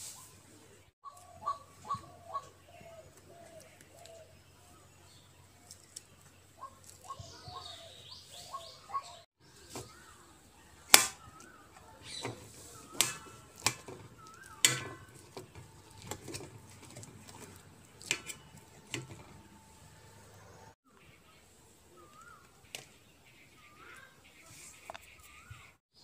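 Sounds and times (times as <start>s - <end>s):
metal utensil scraping metal plate: 12.1s - 19.6s.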